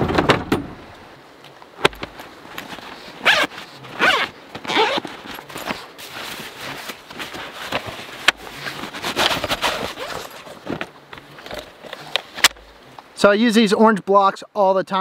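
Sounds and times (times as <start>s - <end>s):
squeaky rubbing and scraping: 2.6s - 10.8s.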